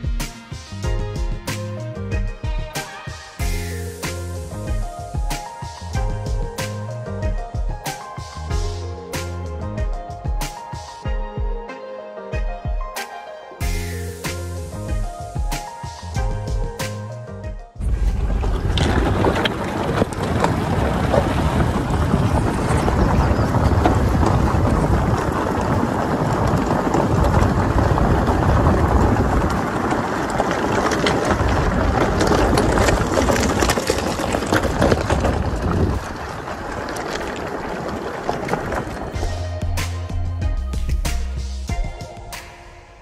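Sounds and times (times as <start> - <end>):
tyres rolling over gravel: 0.0 - 11.0, 13.6 - 42.0
clicks of stones: 17.8 - 39.2
wind rushing over microphone: 17.8 - 39.3.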